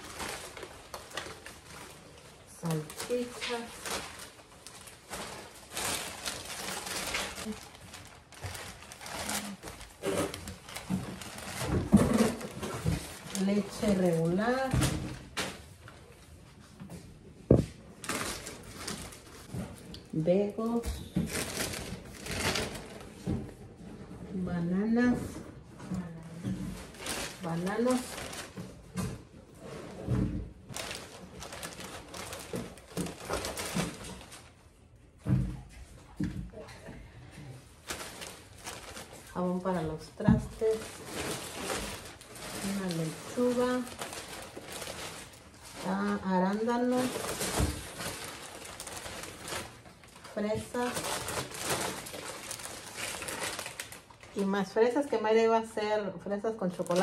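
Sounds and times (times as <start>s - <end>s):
plastic bags rustling: 0.0s - 35.2s, 37.2s - 55.1s, 56.5s - 57.0s
items knocking on table: 17.5s - 17.8s.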